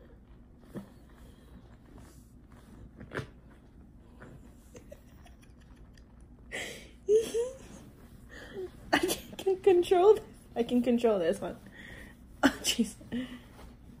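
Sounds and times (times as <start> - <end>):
faint rustling: 7.4 - 14.0.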